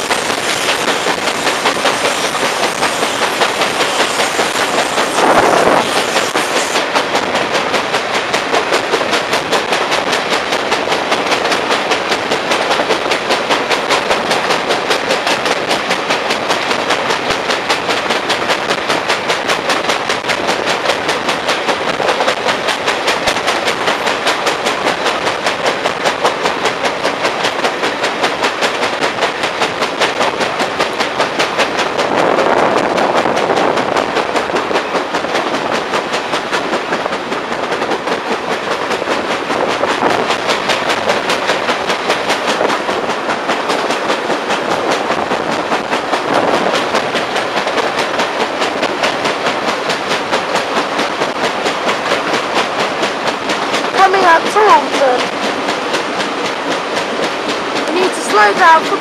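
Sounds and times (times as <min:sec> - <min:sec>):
rushing noise: 0:00.0 - 0:59.0
train wheels rumbling: 0:00.0 - 0:59.0
wheel knocking on rail: 0:00.0 - 0:59.0.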